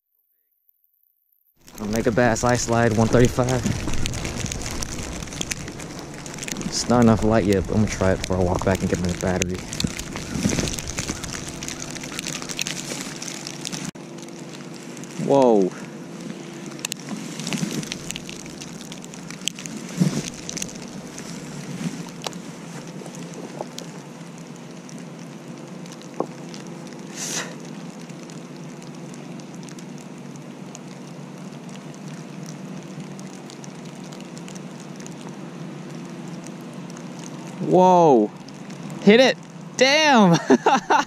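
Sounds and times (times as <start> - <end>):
freezing rain pattering: 1.6 - 41.0
low steady hum: 1.6 - 41.0
short hiss: 27.1 - 27.6.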